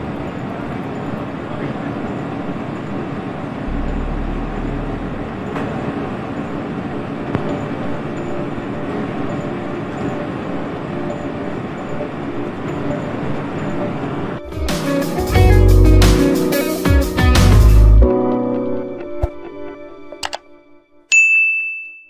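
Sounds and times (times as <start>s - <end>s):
boat engine running: 3.6s - 6.5s.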